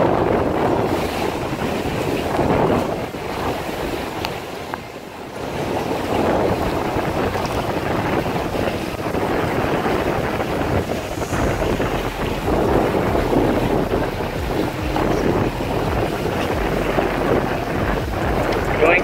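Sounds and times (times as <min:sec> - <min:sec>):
boat motor: 0:00.0 - 0:19.0
water rushing past hull: 0:00.0 - 0:19.0
wind buffeting microphone: 0:00.0 - 0:19.0.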